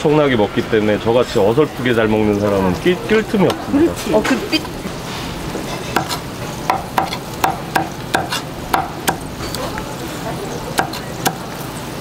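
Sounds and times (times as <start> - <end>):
knife chopping on wooden board: 6.0 - 9.3, 10.8 - 11.4.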